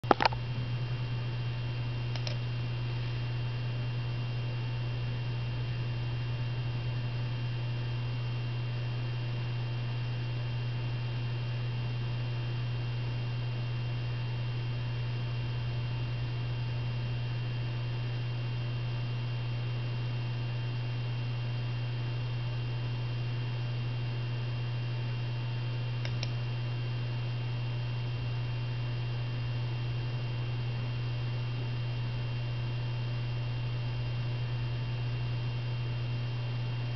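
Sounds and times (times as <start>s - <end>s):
low electrical hum: 0.0s - 36.9s
faint click: 2.1s - 2.4s, 26.0s - 26.4s.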